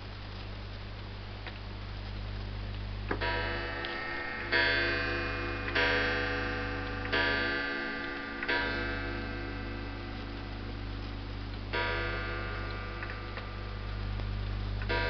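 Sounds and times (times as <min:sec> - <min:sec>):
clock ticking: 0:03.1 - 0:10.4
clock striking: 0:03.1 - 0:13.9.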